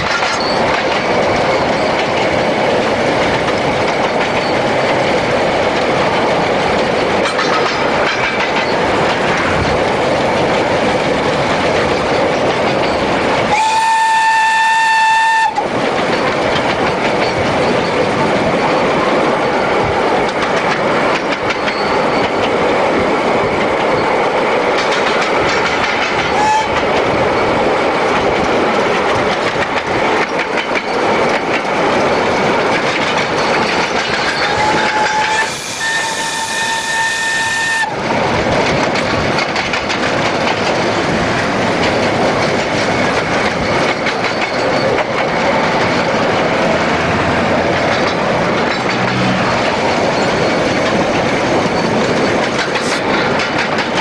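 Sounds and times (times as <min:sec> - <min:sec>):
steam locomotive rushing: 0:00.0 - 0:54.0
steam whistle: 0:13.5 - 0:15.7, 0:26.3 - 0:26.8, 0:34.5 - 0:38.0.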